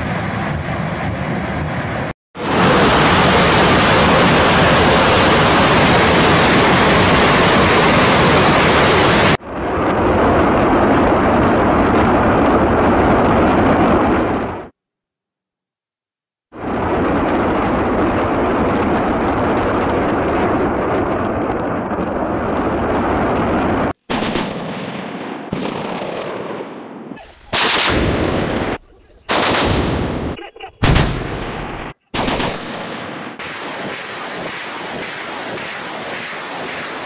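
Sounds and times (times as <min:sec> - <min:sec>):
rocket roar: 0:00.0 - 0:14.7, 0:16.5 - 0:24.0, 0:24.9 - 0:37.0
rocket launch blasts: 0:16.5 - 0:37.0.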